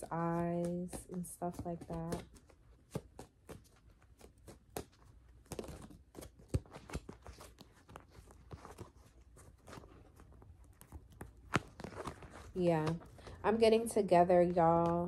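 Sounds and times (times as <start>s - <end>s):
cards being shuffled: 0.0s - 15.0s.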